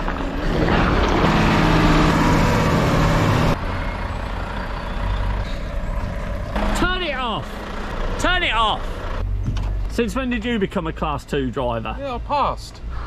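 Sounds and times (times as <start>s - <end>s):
diesel engine running: 0.0s - 11.2s.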